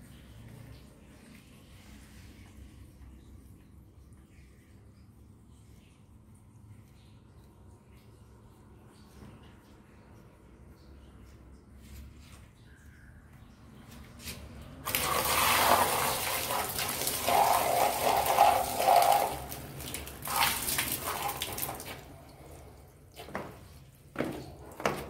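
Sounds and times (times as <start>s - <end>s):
water gushing and splashing: 14.4s - 23.6s.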